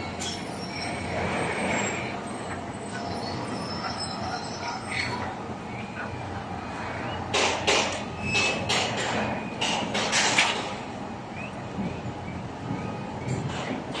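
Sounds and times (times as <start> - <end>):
construction site noise: 0.0 - 14.0
sharp construction knocks: 7.3 - 10.8.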